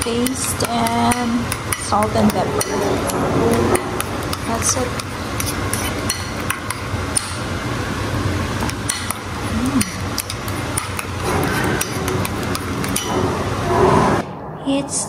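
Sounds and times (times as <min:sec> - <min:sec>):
steady low hum: 0:00.0 - 0:15.0
spoon scraping ceramic bowl: 0:02.6 - 0:06.9, 0:09.1 - 0:13.2.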